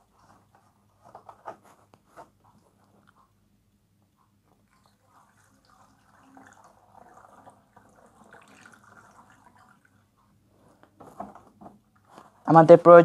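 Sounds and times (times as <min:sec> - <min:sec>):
liquid trickling through a funnel: 0:04.5 - 0:10.4.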